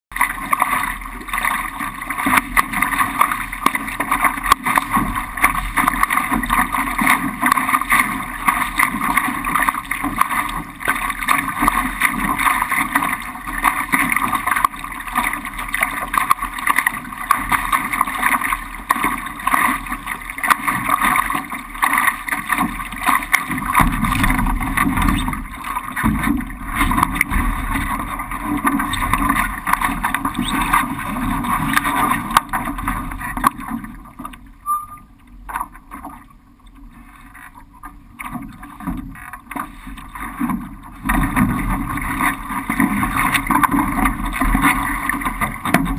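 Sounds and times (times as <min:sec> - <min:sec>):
water rushing against hull: 0:00.1 - 0:45.9
wind buffeting microphone: 0:23.8 - 0:25.4.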